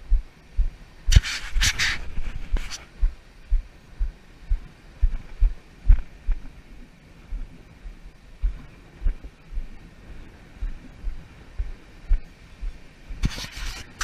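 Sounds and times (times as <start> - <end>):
short rushes of noise: 1.1 - 2.9, 13.2 - 14.0.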